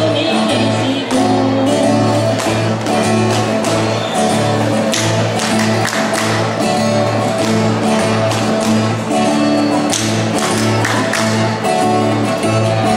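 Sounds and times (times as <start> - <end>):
backing music: 0.0 - 12.9
strummed guitar: 0.0 - 12.9
hands clapping rhythmically: 2.2 - 12.4.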